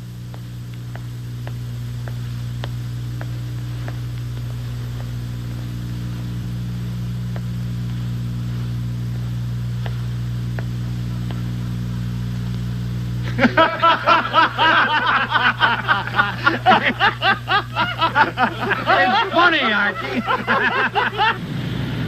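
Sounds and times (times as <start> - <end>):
low electrical hum: 0.0 - 22.0
faint light ticks: 0.3 - 13.2.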